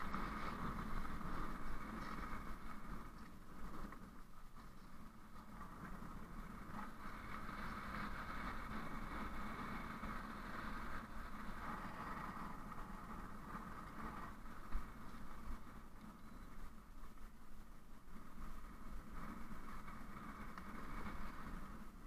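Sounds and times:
vehicle rumbling on dirt track: 0:00.0 - 0:17.2.

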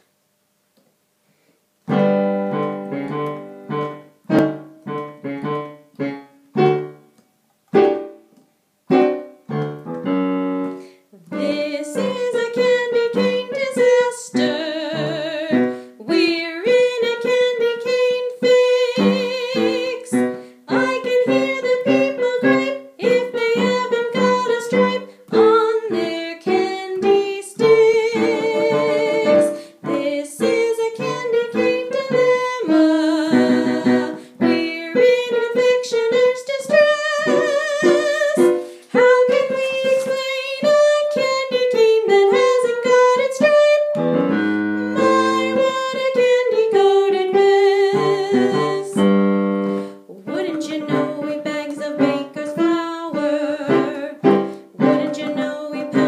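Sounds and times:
piano chords: 0:01.9 - 0:07.1, 0:07.7 - 0:56.0
woman singing: 0:11.2 - 0:49.3, 0:50.1 - 0:56.0.

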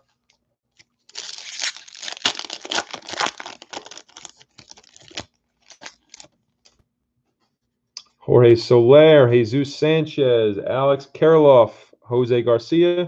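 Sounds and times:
foil wrapper tearing and crinkling: 0:01.0 - 0:06.4.

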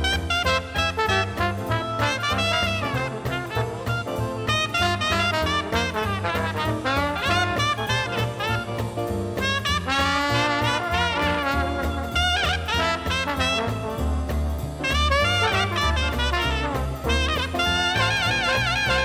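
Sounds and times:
drums: 0:00.0 - 0:19.0
piano: 0:00.0 - 0:19.0
string bass: 0:00.0 - 0:19.0
trombone: 0:00.0 - 0:19.0
trumpet: 0:00.0 - 0:19.0.

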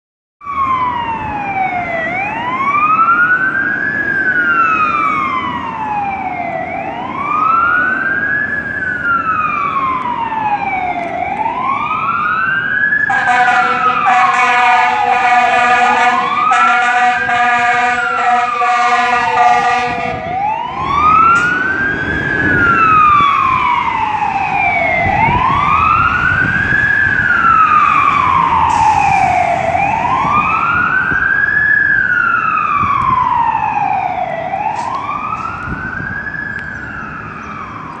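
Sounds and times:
fire truck siren wailing: 0:00.4 - 0:38.0
air horn blast: 0:13.1 - 0:20.2.

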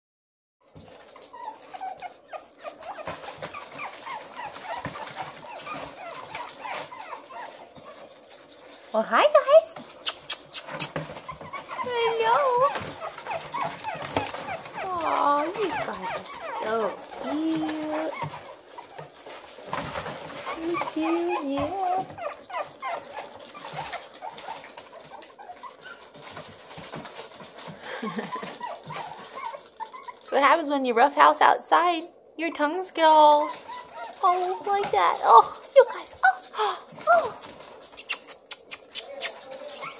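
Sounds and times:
puppies whining: 0:00.6 - 0:30.6, 0:32.4 - 0:39.9
paws scratching on paper: 0:00.6 - 0:30.7, 0:32.6 - 0:39.9.

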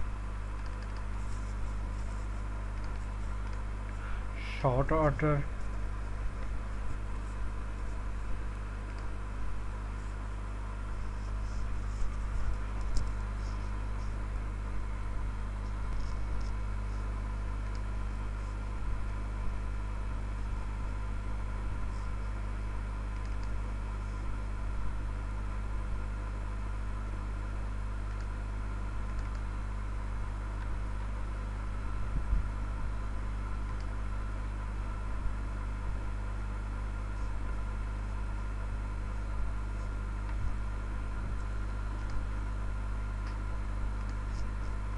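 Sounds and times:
low hum and whir: 0:00.0 - 0:44.9
faint clicks: 0:00.6 - 0:01.1, 0:29.0 - 0:29.4.

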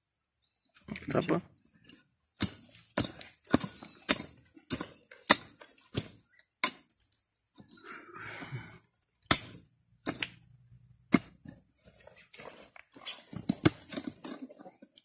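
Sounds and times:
hand pick striking soil: 0:01.9 - 0:07.8, 0:09.1 - 0:14.6.

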